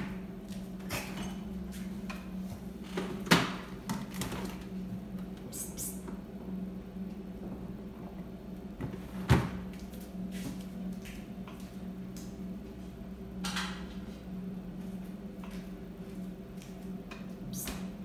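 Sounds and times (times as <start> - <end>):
low hum: 0.0 - 18.0
refrigerator door opening: 8.8 - 9.8.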